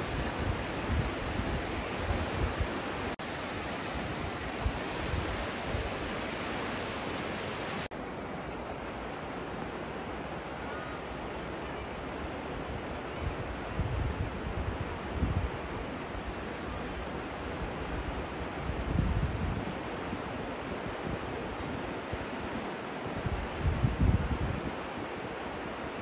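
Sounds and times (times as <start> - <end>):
wind buffeting microphone: 0.0 - 6.5, 23.2 - 24.8
river water rushing: 0.0 - 13.7, 19.7 - 26.0.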